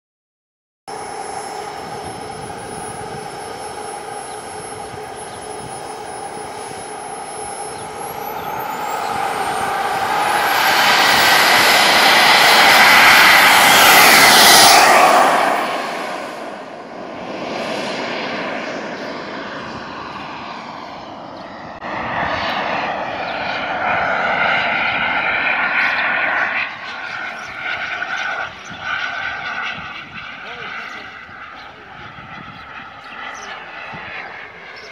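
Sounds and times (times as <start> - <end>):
model jet engine whining: 0.9 - 34.9.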